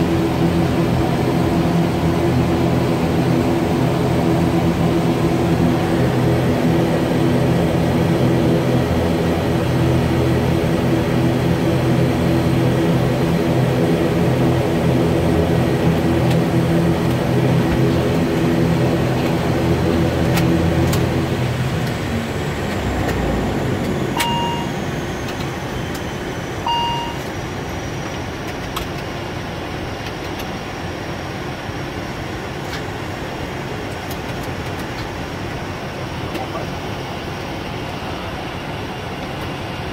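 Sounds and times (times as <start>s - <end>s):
turboprop engines droning: 0.0s - 39.9s
falling high whine: 20.6s - 27.7s
short electronic beeps: 24.2s - 24.8s, 26.7s - 27.2s.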